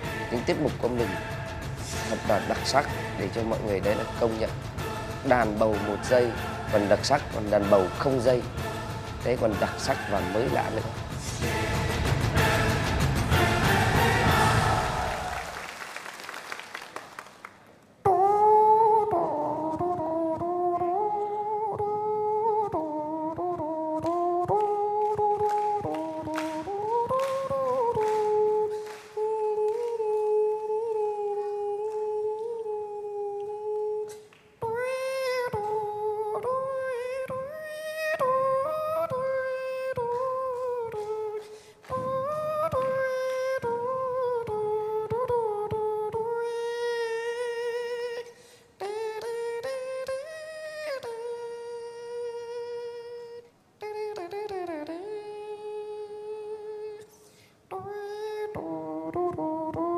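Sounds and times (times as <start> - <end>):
man humming a melody: 18.0 - 41.4, 42.2 - 57.1, 57.7 - 59.9.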